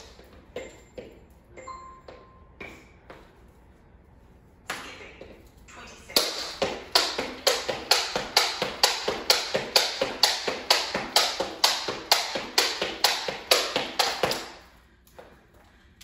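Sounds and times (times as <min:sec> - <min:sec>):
jump rope slapping wooden floor: 0:06.1 - 0:15.3.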